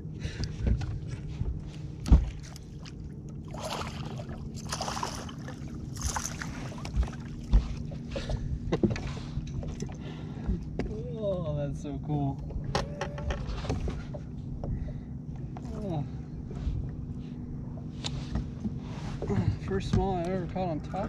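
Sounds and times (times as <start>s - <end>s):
steady low hum: 0.0s - 21.0s
thumps on boat deck: 2.0s - 2.4s, 18.3s - 20.3s.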